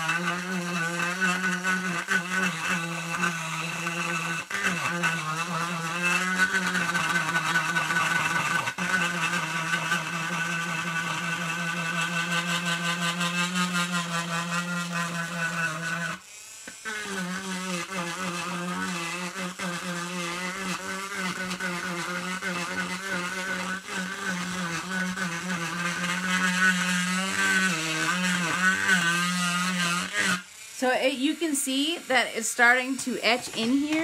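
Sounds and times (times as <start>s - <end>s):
engraving pen whining: 0.0s - 34.0s.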